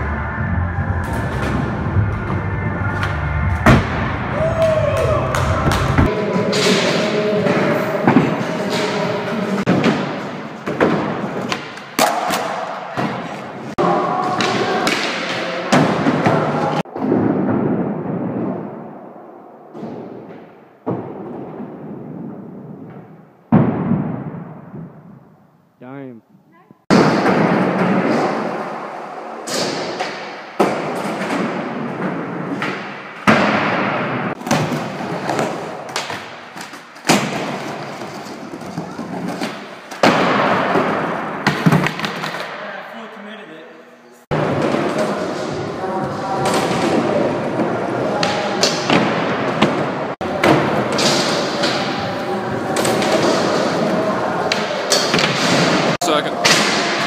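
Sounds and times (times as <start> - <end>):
background music: 0.0 - 6.5.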